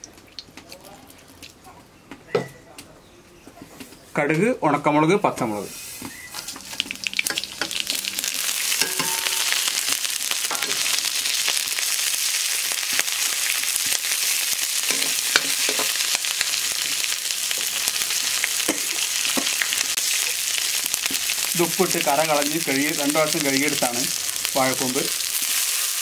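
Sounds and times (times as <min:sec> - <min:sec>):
seeds sizzling in hot oil: 0:05.7 - 0:26.0
metal ladle stirring in pan: 0:05.9 - 0:11.9, 0:13.7 - 0:16.9.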